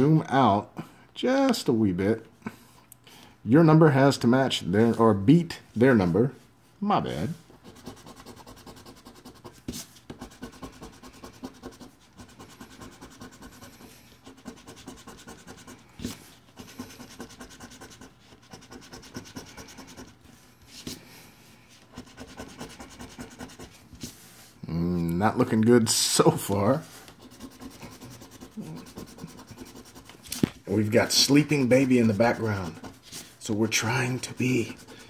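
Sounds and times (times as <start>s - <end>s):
lottery ticket being scratched: 7.6s - 20.2s, 21.9s - 23.8s, 26.2s - 35.0s.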